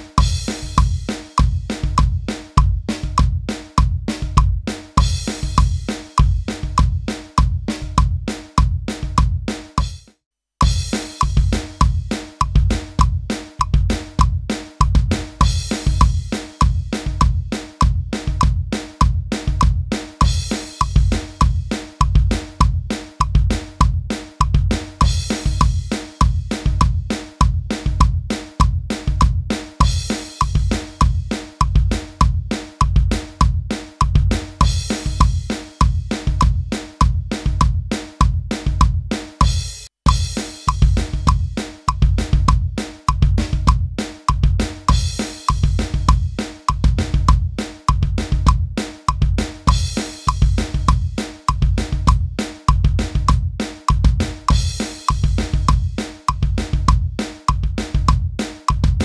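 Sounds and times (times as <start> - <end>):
electronic drum kit punk beat: 0.0 - 59.0.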